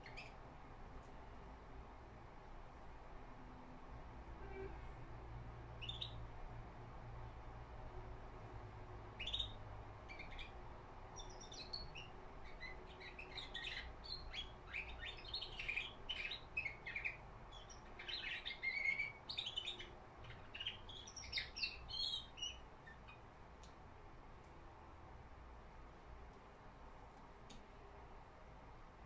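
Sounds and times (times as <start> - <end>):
songbird twittering and trilling: 0.0 - 0.4, 5.8 - 6.2, 9.2 - 23.2.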